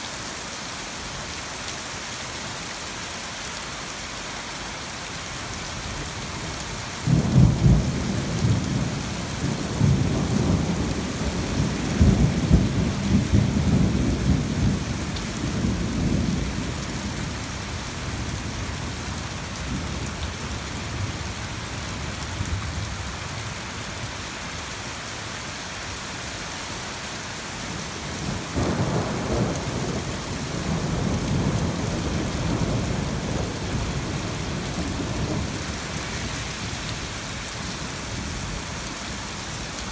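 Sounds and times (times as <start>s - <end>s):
rain hissing: 25.7s - 39.9s.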